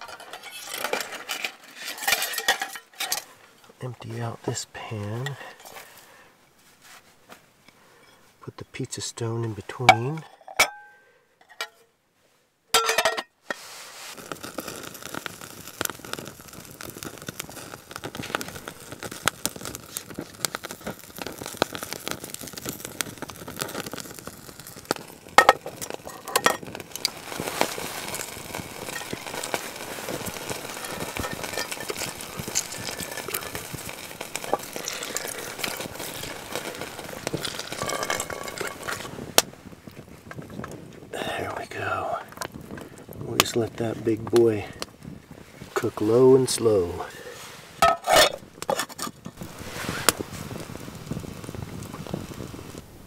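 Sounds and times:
wood fire crackling: 0:00.0 - 0:53.0
oil sizzling in a pan: 0:13.4 - 0:40.0, 0:45.1 - 0:53.0.

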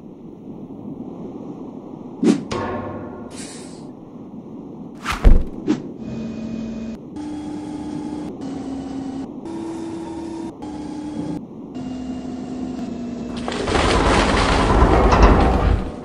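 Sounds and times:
short hiss: 0:03.3 - 0:03.9
heavy thud: 0:05.0 - 0:05.7.

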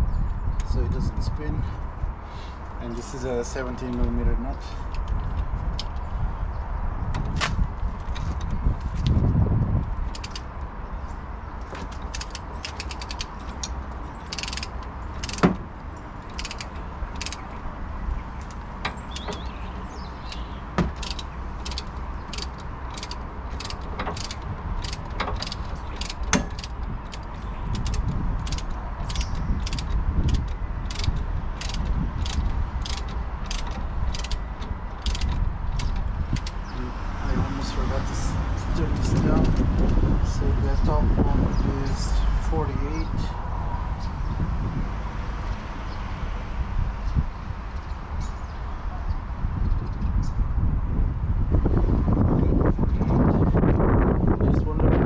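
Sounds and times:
socket ratchet clicking: 0:10.1 - 0:10.5, 0:12.0 - 0:17.6, 0:18.4 - 0:36.7, 0:38.8 - 0:40.0
tool knocks: 0:20.7 - 0:21.2.

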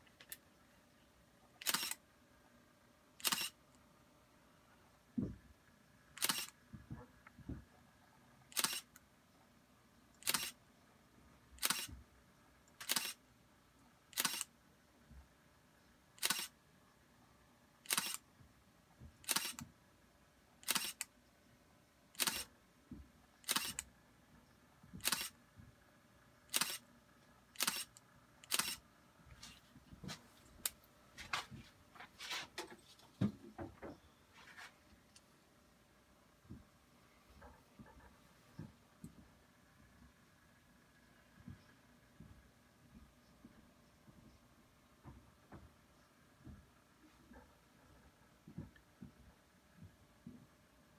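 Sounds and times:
sharp clicks: 0:08.5 - 0:09.0, 0:12.7 - 0:13.2, 0:14.1 - 0:14.5, 0:17.8 - 0:18.2, 0:19.2 - 0:19.7, 0:20.6 - 0:21.1, 0:22.1 - 0:22.5, 0:23.4 - 0:23.9, 0:25.0 - 0:25.4, 0:26.5 - 0:26.8, 0:27.6 - 0:28.8.

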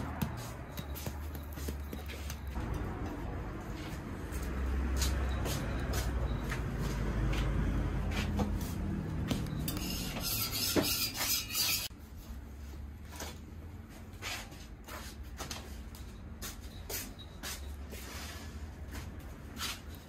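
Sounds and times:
metal spatula scraping griddle: 0:09.6 - 0:11.9.

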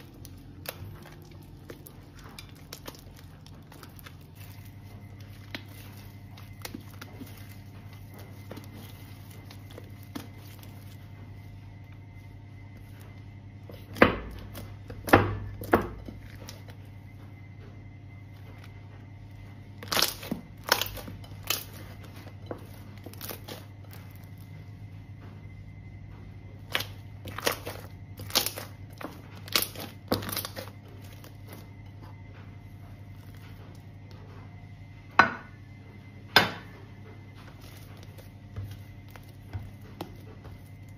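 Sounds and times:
slime squelching: 0:00.0 - 0:17.1, 0:18.2 - 0:24.6, 0:26.6 - 0:34.1, 0:37.4 - 0:40.9
steady low hum: 0:00.0 - 0:40.9
slime popping and snapping: 0:19.8 - 0:21.9
slime popping and crackling: 0:19.8 - 0:24.2, 0:26.7 - 0:31.3.

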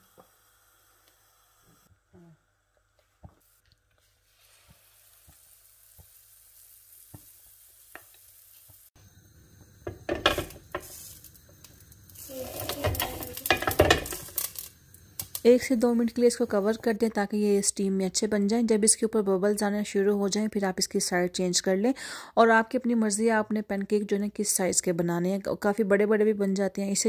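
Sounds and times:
batter sizzling: 0:03.0 - 0:17.4.

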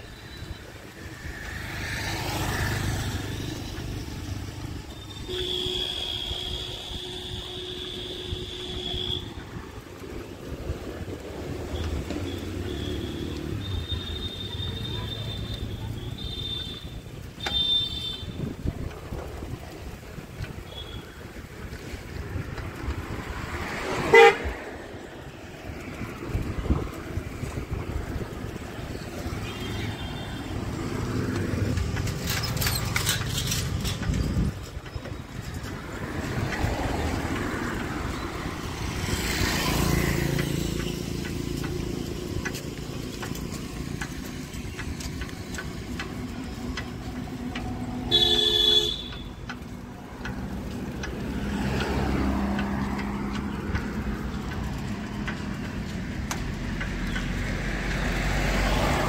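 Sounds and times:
vehicles passing: 0:00.0 - 0:59.0
short vehicle horn toot: 0:48.1 - 0:49.2.

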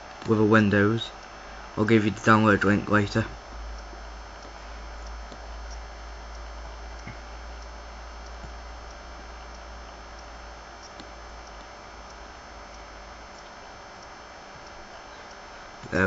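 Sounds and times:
low hum and hiss: 0:00.0 - 0:16.0
computer mouse clicks: 0:10.8 - 0:11.7.

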